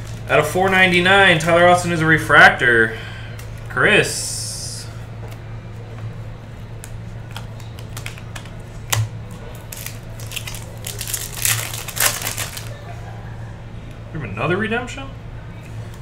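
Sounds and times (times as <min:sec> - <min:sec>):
steady low hum: 0:00.0 - 0:16.0
foil wrapper crinkling and tearing: 0:07.3 - 0:12.8.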